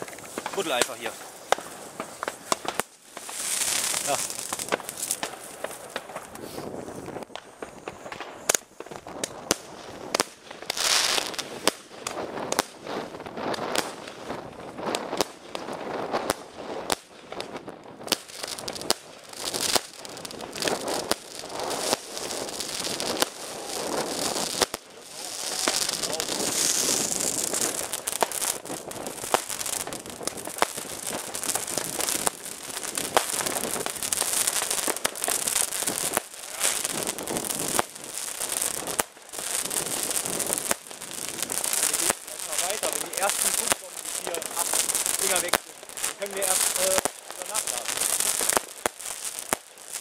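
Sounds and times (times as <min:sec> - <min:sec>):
fireworks bangs and crackle: 0:00.0 - 0:50.0.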